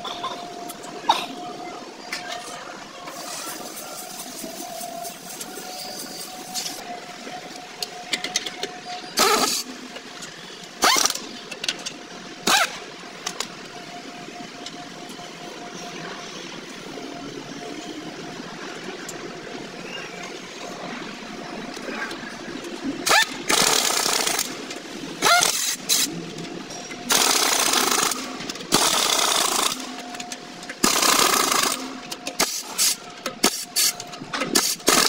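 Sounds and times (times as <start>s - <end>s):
pneumatic impact wrench bursts: 9.2s - 9.7s, 10.8s - 11.2s, 12.4s - 12.8s, 23.0s - 24.6s, 25.2s - 26.1s, 27.1s - 30.0s, 30.8s - 35.0s.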